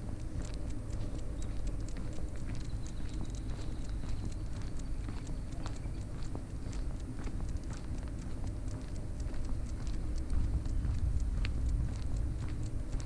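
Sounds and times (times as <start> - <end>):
footsteps and dog paws clicking: 0.0 - 13.0
low rumble: 6.5 - 13.0.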